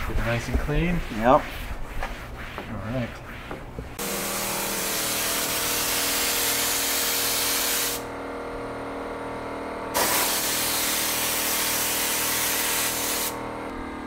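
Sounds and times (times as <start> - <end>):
spray gun hissing: 4.0 - 8.0, 10.0 - 13.4.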